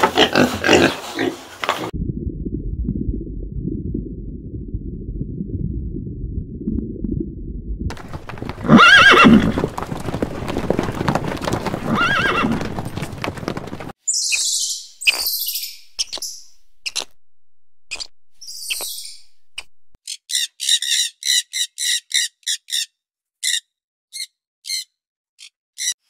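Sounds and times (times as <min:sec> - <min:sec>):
muffled low rumble: 0:02.0 - 0:08.2, 0:19.2 - 0:20.0
horses galloping hoofbeats: 0:07.9 - 0:14.0
horse whinnying: 0:08.0 - 0:13.8
high-pitched chirps: 0:14.1 - 0:17.2, 0:17.8 - 0:20.6.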